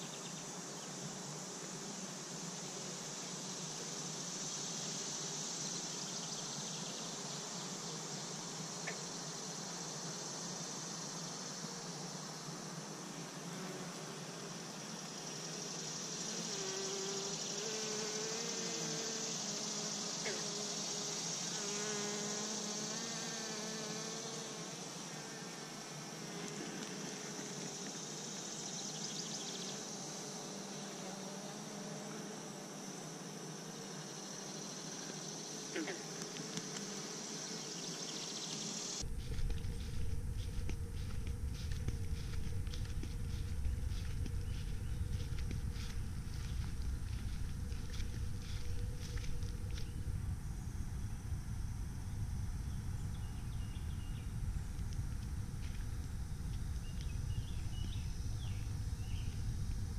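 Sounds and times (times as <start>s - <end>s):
bees buzzing: 7.2s - 50.2s
steady hiss: 32.8s - 59.9s
wind rumble on microphone: 39.0s - 59.9s.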